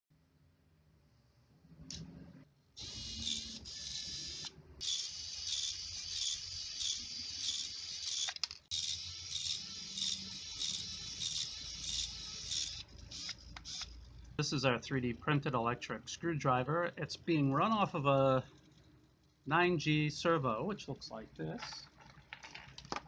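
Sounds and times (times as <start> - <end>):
servo motor whining: 2.8 - 14.0.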